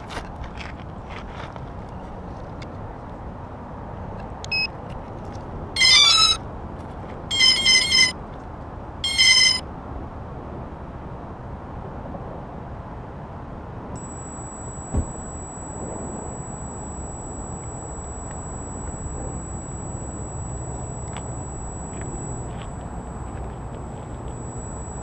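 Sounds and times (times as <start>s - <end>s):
electronic motor beep tones: 4.5s - 4.7s, 5.8s - 6.4s, 7.3s - 8.2s, 9.0s - 9.6s, 14.0s - 25.0s.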